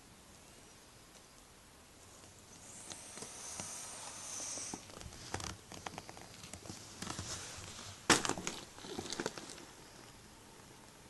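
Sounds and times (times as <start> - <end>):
hissy noise: 0.0 - 11.0
close rustling: 2.0 - 10.0.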